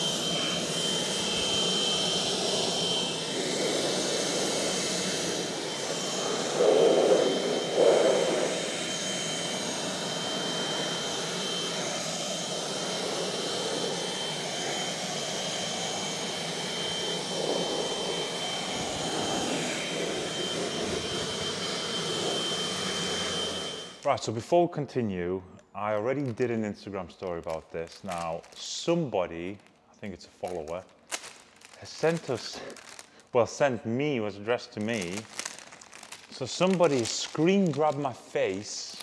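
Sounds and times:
cordless blower whining: 0:00.0 - 0:24.0, 0:34.9 - 0:39.0.

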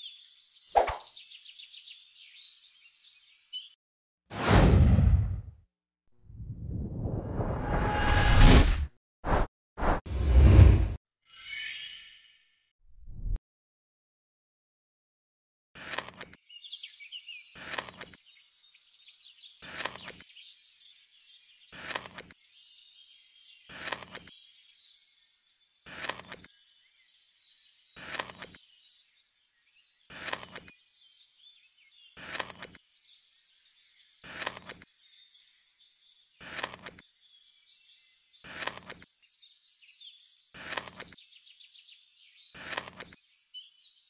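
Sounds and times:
birds chirping: 0:16.0 - 0:44.0.

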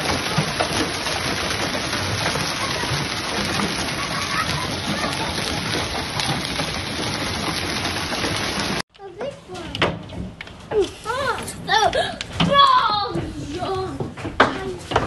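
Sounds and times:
hail pattering on paving: 0:00.0 - 0:08.8.

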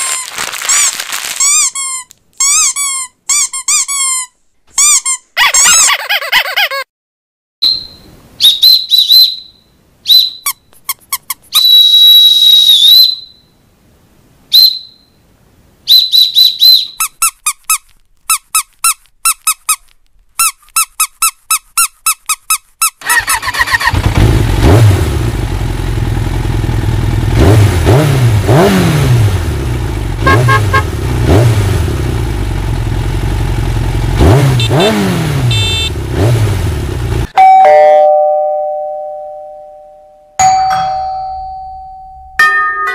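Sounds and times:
high-pitched squeaks and whistles: 0:00.0 - 0:06.0, 0:07.6 - 0:13.5, 0:15.9 - 0:23.4
vehicle engine revving: 0:23.1 - 0:37.3
doorbell chime: 0:37.4 - 0:42.9.

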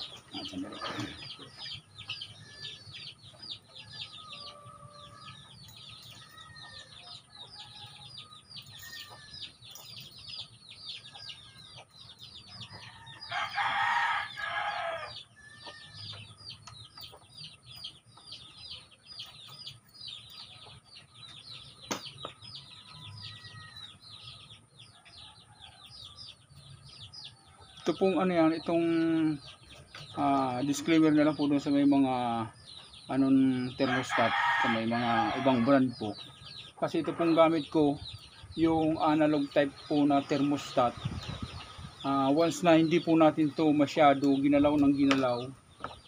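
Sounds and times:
chicks peeping: 0:00.0 - 0:46.0
rooster crowing: 0:12.8 - 0:15.6, 0:33.8 - 0:35.8.

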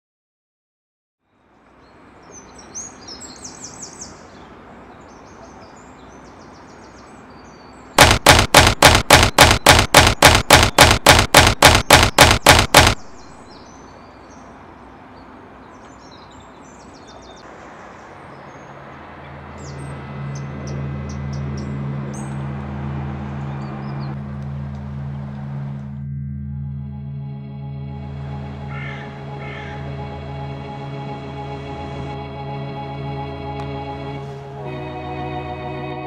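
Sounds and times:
birds chirping: 0:02.3 - 0:22.5
sharp evenly spaced strokes: 0:08.0 - 0:13.5.

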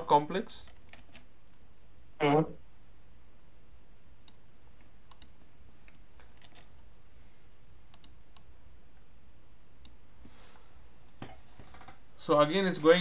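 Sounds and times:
steady low hum: 0:00.0 - 0:13.0
computer clicks: 0:04.2 - 0:06.7, 0:07.9 - 0:09.1, 0:09.8 - 0:10.0.

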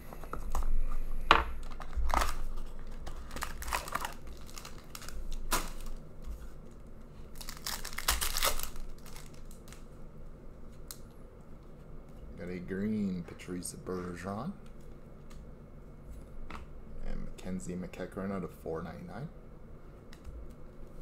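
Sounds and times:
plastic and foil wrapping tearing: 0:01.6 - 0:06.0, 0:07.3 - 0:09.9.

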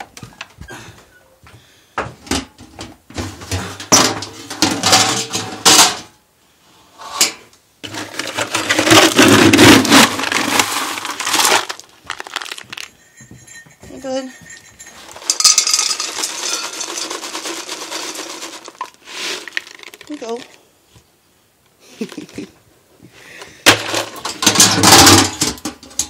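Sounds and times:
metal lid clattering: 0:02.3 - 0:06.1, 0:23.8 - 0:26.0
scoop scraping through pellet feed: 0:07.8 - 0:12.6, 0:15.0 - 0:20.6.

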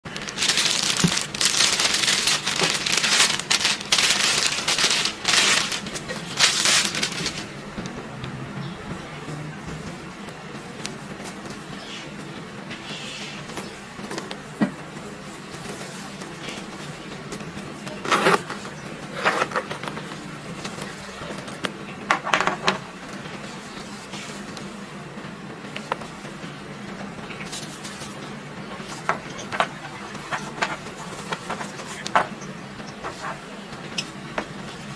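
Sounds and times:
wrapping crinkling and rustling: 0:00.0 - 0:07.6.

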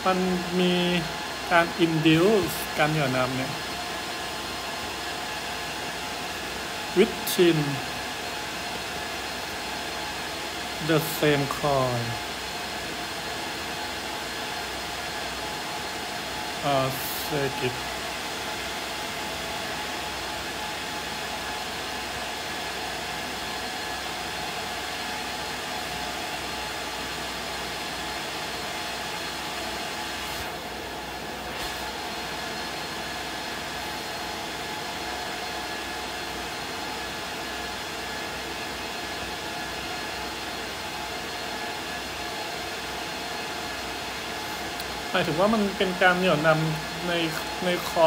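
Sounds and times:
background hiss and hum: 0:05.8 - 0:18.2.

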